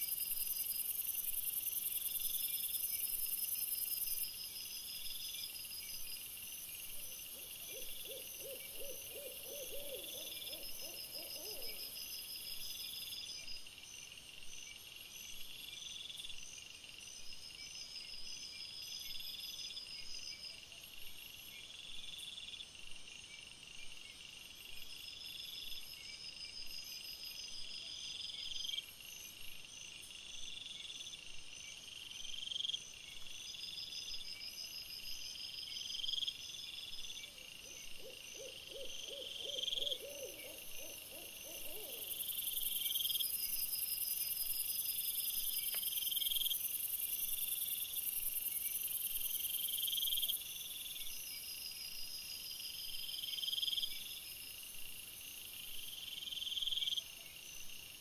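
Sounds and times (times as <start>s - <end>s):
insect-like chirps: 30.0s - 58.0s.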